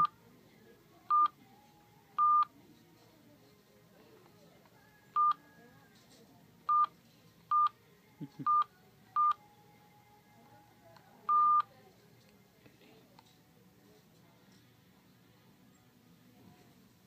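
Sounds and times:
phone keypad beeping: 1.1s - 1.4s, 2.2s - 2.5s, 6.7s - 6.9s, 11.3s - 11.7s.

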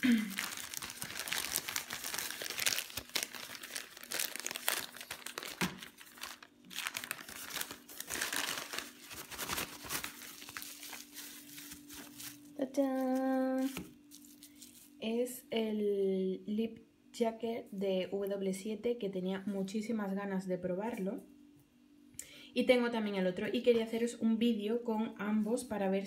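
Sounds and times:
bubble wrap unfolding: 0.0s - 15.0s
plastic packaging crinkling: 0.0s - 15.0s.

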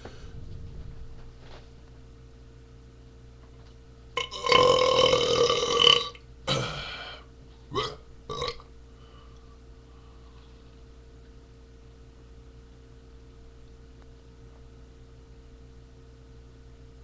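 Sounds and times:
man belching: 4.2s - 8.7s.

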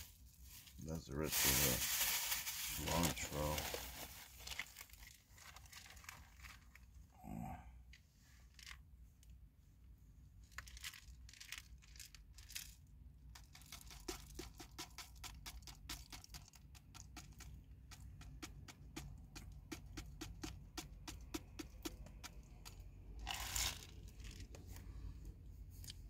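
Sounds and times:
rustling of food wrappings: 0.4s - 7.0s, 10.4s - 12.8s
spice jar shaken rattling: 10.6s - 24.5s.

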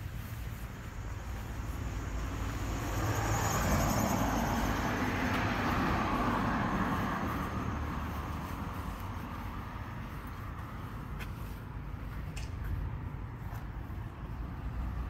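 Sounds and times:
vehicle passing by: 0.5s - 11.6s.

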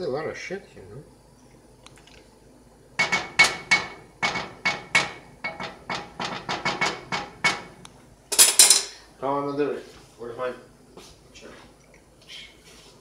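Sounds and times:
wooden spoon knocking metal pot: 3.0s - 7.8s.

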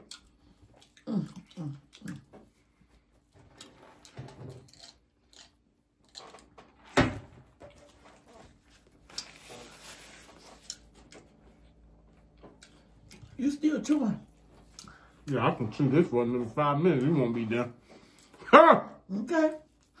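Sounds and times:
person chewing and eating: 0.0s - 6.9s, 7.7s - 15.4s.

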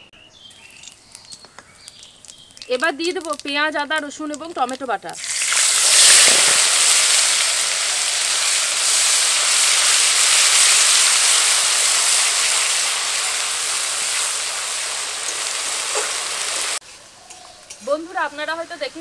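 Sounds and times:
paste sizzling in hot oil: 0.6s - 16.8s.

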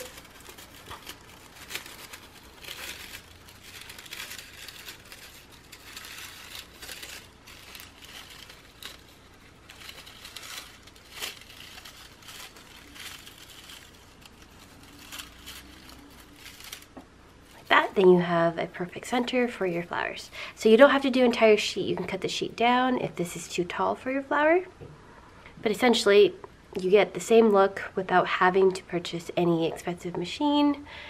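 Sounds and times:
card stock rustling and crinkling: 0.0s - 21.3s.

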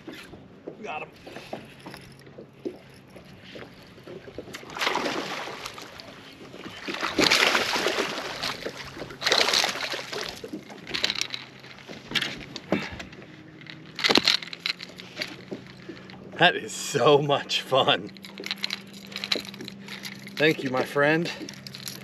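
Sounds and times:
fish splashing at water surface: 4.5s - 10.9s.

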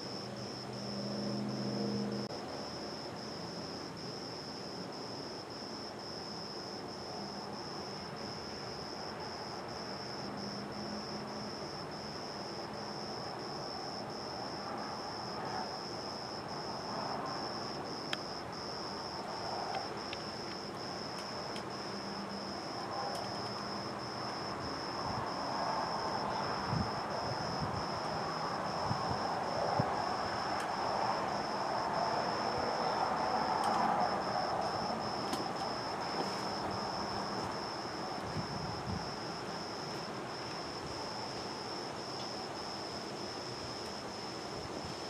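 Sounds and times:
crickets chirping: 0.0s - 45.0s.

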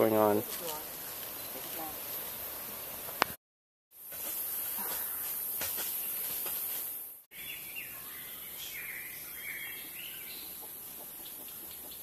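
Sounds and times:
birds chirping: 7.3s - 12.0s.

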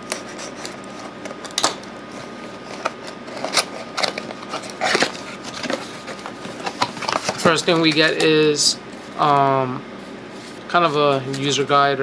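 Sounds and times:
blade slitting packing tape: 2.7s - 5.9s
cardboard flap ripping: 2.8s - 7.8s.

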